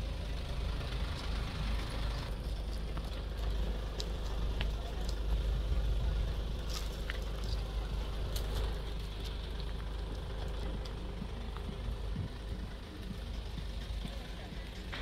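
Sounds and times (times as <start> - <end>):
steady low rumble: 0.0 - 15.0
twigs crackling and snapping: 2.3 - 5.4, 6.6 - 11.7.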